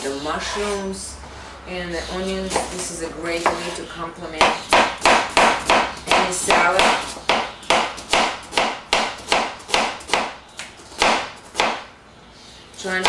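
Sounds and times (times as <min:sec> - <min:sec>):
knife chopping on cutting board: 0:02.5 - 0:03.8, 0:04.4 - 0:10.3.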